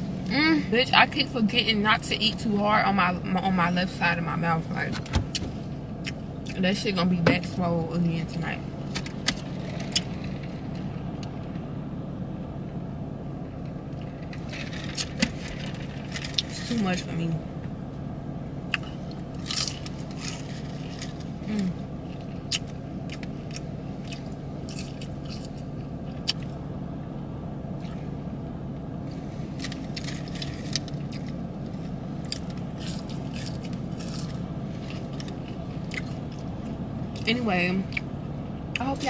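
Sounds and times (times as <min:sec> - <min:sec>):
steady low hum: 0:00.0 - 0:39.0
chewing and biting: 0:18.7 - 0:21.4, 0:22.1 - 0:26.5, 0:29.6 - 0:36.5.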